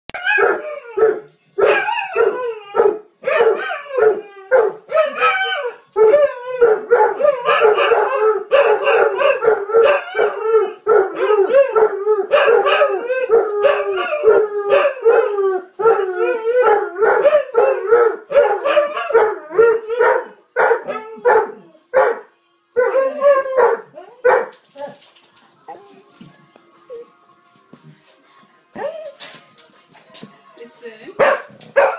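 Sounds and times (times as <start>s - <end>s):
dogs howling: 0.2s - 22.2s, 22.8s - 25.0s, 28.7s - 29.4s.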